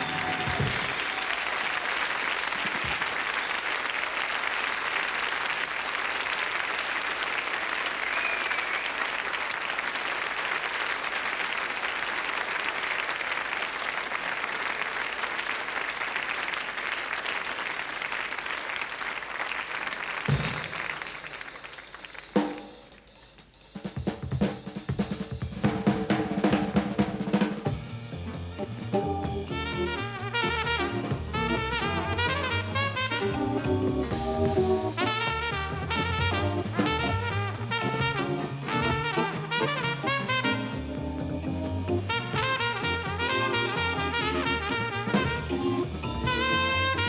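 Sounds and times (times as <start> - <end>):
drum hits: 0.0 - 1.1, 20.3 - 21.3, 22.3 - 47.0
audience applauding: 0.0 - 23.1, 29.6 - 40.8, 42.0 - 47.0.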